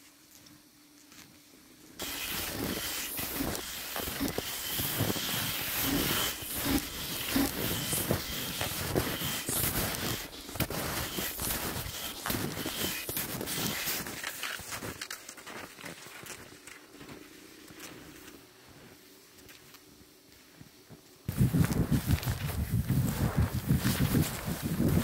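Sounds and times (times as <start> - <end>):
steady hiss: 0.0 - 15.0
crunching and scraping over snow: 2.0 - 25.0.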